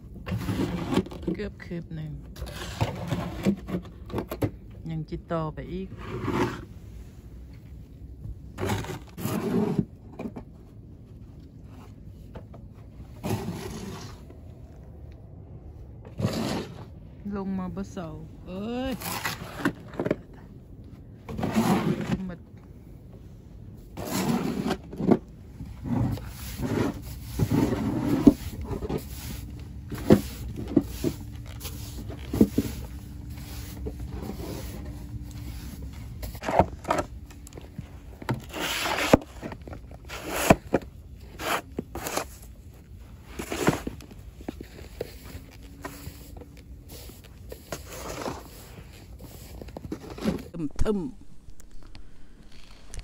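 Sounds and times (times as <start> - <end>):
snow shovel scraping paving: 0.3 - 1.3, 2.4 - 3.9, 5.8 - 7.0, 8.6 - 10.2, 13.1 - 14.4, 16.1 - 17.0, 18.6 - 20.2, 21.3 - 22.4, 23.9 - 37.2, 37.8 - 42.6, 43.2 - 53.0.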